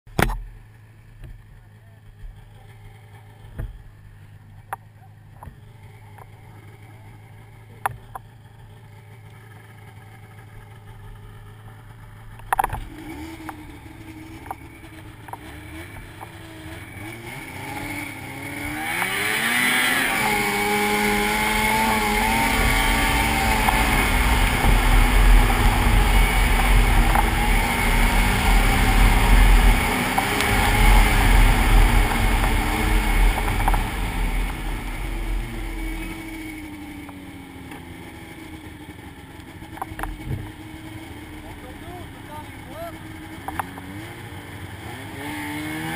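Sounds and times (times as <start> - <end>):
snowmobile engine revving: 12.7 - 45.9.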